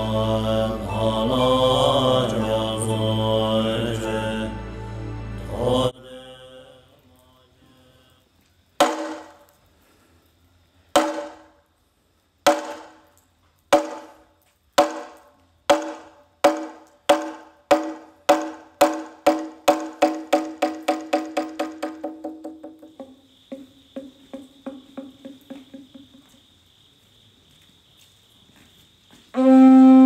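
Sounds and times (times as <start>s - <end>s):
mallet striking wooden board: 8.8s - 9.4s, 11.0s - 11.5s, 12.5s - 13.0s, 13.7s - 14.2s, 14.8s - 26.0s.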